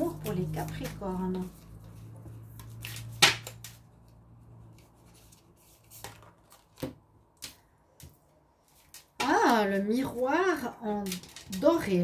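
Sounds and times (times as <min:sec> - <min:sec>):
cards tapping and clicking: 0:00.1 - 0:04.1, 0:05.8 - 0:09.8.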